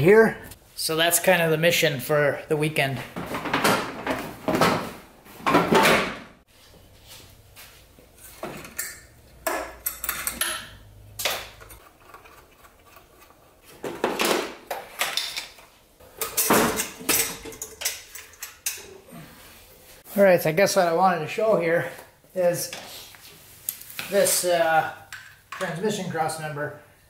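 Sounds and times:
car parts knocking and clattering: 3.1 - 6.4, 13.7 - 18.8.

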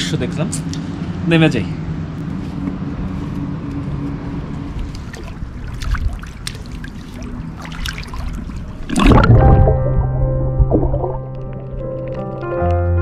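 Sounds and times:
steady low hum: 0.0 - 12.2
water sloshing and trickling: 4.5 - 10.0
underwater splash and bubbles: 4.9 - 12.2.

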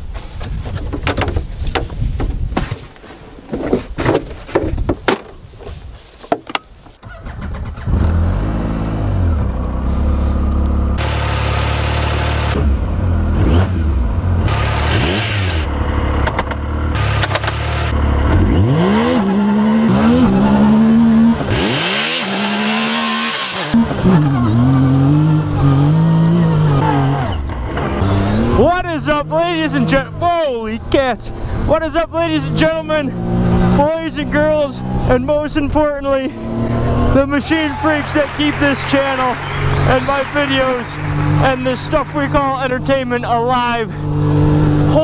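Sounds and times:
knocks and clatter: 0.4 - 5.4
engine starting and revving: 7.0 - 10.4, 11.0 - 28.8.

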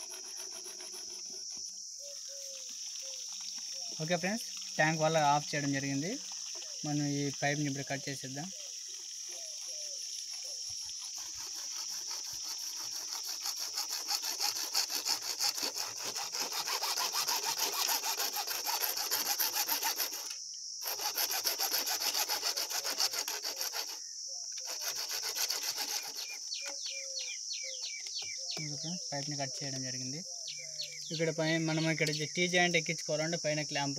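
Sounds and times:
hacksaw sawing plastic pipe: 0.0 - 1.8, 10.7 - 27.0.

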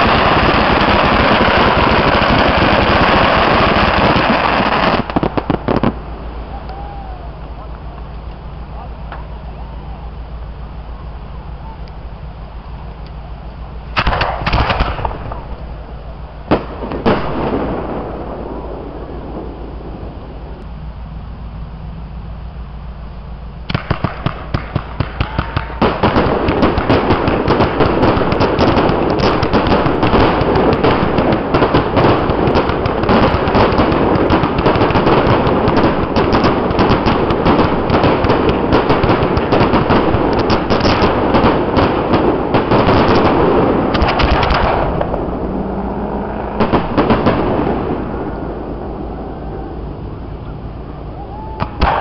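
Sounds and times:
fireworks popping and banging: 0.0 - 9.4, 13.9 - 18.2, 23.7 - 48.4, 51.6 - 52.0.

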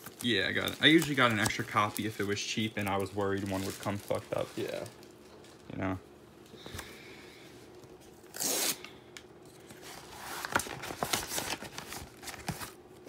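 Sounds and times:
packaging ripping: 0.0 - 5.2, 10.2 - 12.8
paper and plastic crinkling: 0.0 - 5.7, 9.6 - 13.0.

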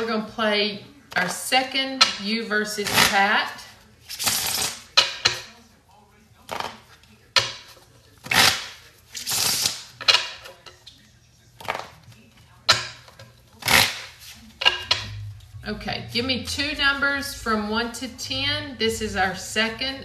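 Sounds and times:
playing cards riffle-shuffled: 4.0 - 4.9, 8.2 - 9.9.

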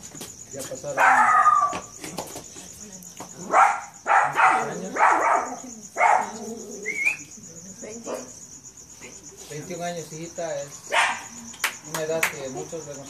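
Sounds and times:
dog barking: 1.0 - 1.8, 3.4 - 6.4, 10.9 - 11.3.

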